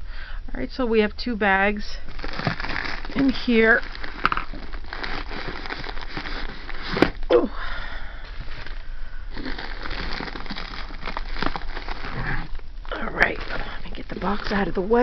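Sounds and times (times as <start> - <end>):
plastic bags crinkling: 2.0 - 7.3, 8.2 - 15.0
cardboard flaps rustling: 2.2 - 7.3.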